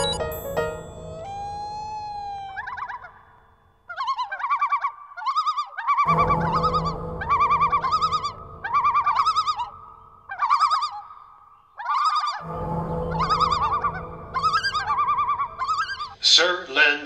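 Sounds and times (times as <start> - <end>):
warbling synthetic bleeps: 0.0 - 3.2, 6.1 - 10.9, 12.4 - 16.3
low machine hum: 0.0 - 3.6, 6.1 - 11.0, 12.4 - 16.3.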